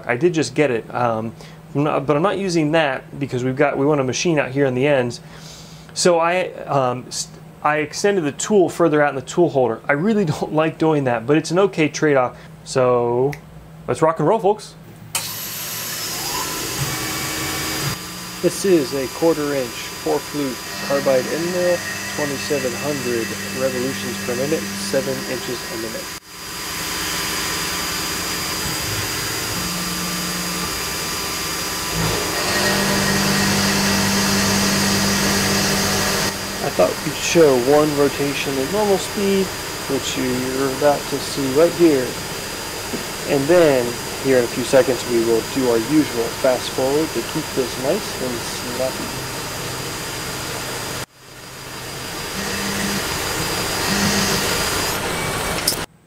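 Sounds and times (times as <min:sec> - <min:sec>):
milling machine cutting steel: 0:15.2 - 0:55.9
steady low hum: 0:16.1 - 0:55.5.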